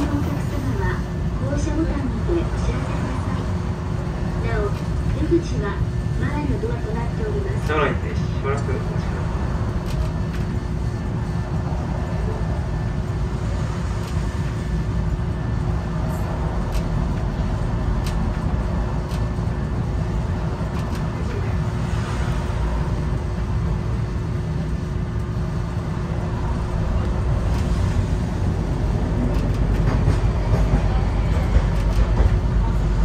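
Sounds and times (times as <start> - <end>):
constant hum: 0.0 - 33.0
streetcar rumble: 0.0 - 33.0
sharp clicks: 18.0 - 18.4, 29.2 - 29.9.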